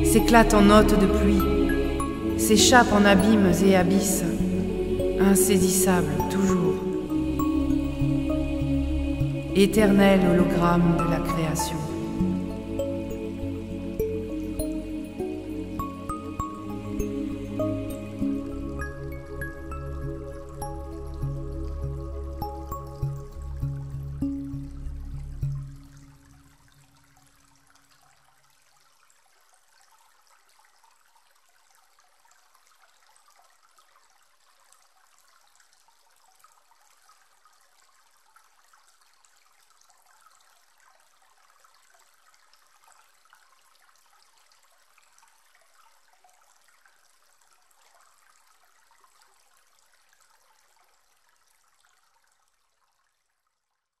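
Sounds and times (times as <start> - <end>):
music: 0.0 - 26.5
running water: 0.0 - 52.8.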